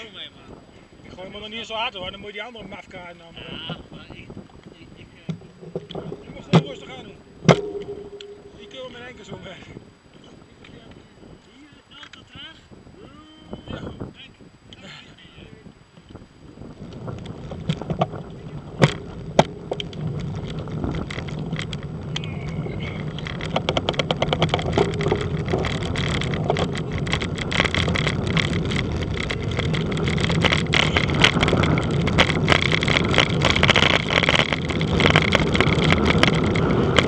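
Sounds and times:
wind and road noise: 0:00.0 - 0:09.3, 0:10.4 - 0:37.0
bicycle rattling clicks: 0:18.8 - 0:37.0.

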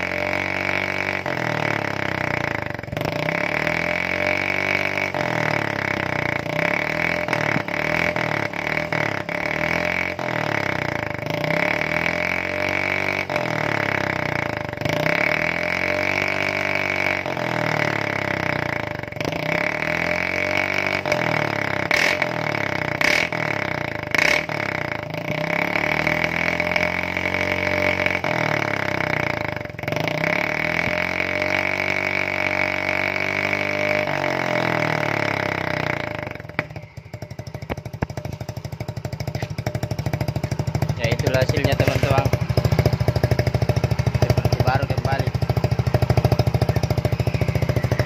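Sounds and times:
scooter engine revving: 0:00.0 - 0:48.0
sharp exhaust cracks: 0:37.4 - 0:48.0.

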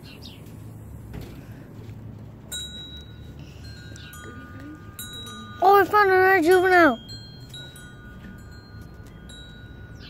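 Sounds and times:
metal wind chimes ringing: 0:02.4 - 0:10.0.

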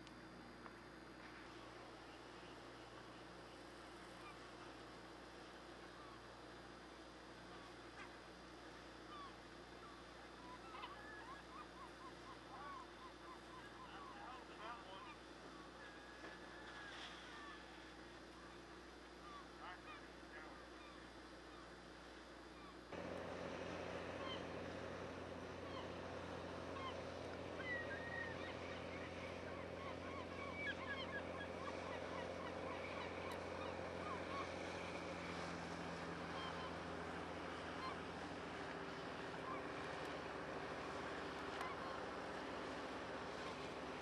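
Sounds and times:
boat diesel engine humming: 0:00.0 - 0:44.0
gulls crying: 0:08.9 - 0:21.8, 0:22.5 - 0:44.0.

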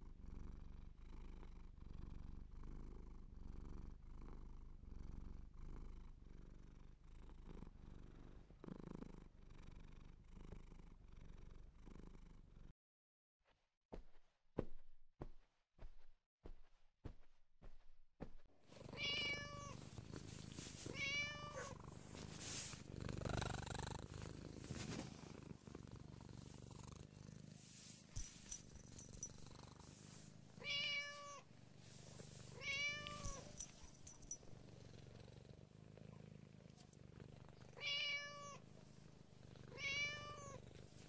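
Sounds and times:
cat purring: 0:00.0 - 0:12.7, 0:18.6 - 0:41.0
cat meowing: 0:18.9 - 0:19.8, 0:20.9 - 0:21.8, 0:30.6 - 0:31.4, 0:32.6 - 0:33.6, 0:37.8 - 0:38.6, 0:39.7 - 0:40.6.

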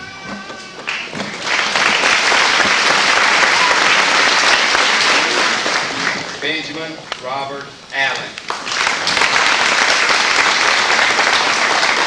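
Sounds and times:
audience applauding: 0:00.8 - 0:06.5, 0:08.4 - 0:12.0.

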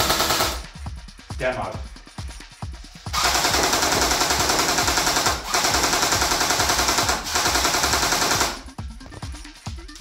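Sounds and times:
airsoft gun automatic fire: 0:00.0 - 0:00.6, 0:03.2 - 0:08.6.

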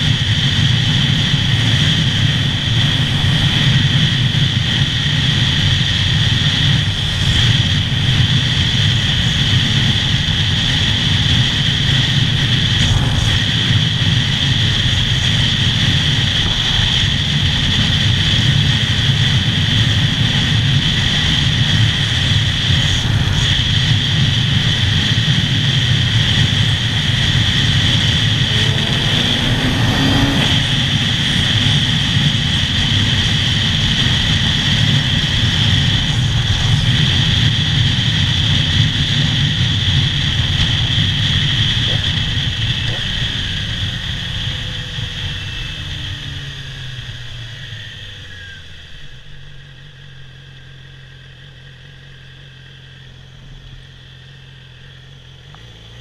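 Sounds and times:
motorcycle engine whine: 0:00.0 - 0:56.0
wind rushing: 0:09.7 - 0:44.2.

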